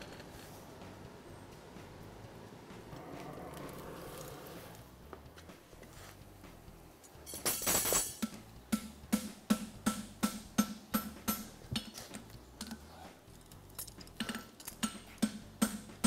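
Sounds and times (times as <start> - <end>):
hammer striking steel on anvil: 7.4 - 12.0, 14.2 - 16.0.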